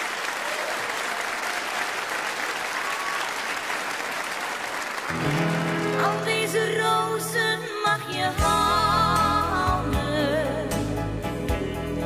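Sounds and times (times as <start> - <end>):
audience applauding: 0.0 - 7.1
music with sustained chords: 5.1 - 7.8.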